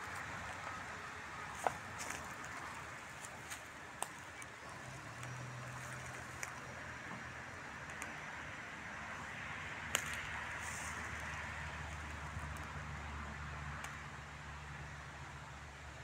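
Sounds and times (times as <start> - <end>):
car tyre noise with low hum: 0.0 - 16.0
sharp clicks: 7.8 - 8.2.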